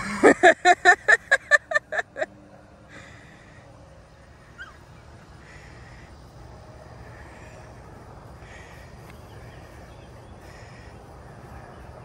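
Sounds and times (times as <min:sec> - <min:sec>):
faint outdoor background: 0:00.0 - 0:12.0
rapid fowl calls: 0:07.0 - 0:11.6.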